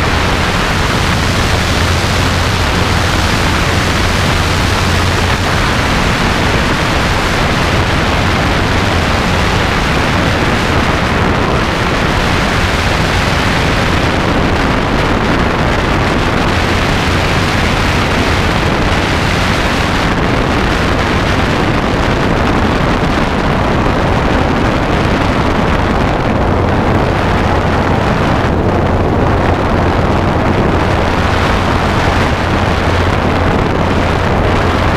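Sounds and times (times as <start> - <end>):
helicopter engine and rotors droning: 0.0 - 19.7
wind rushing on microphone: 0.0 - 34.9.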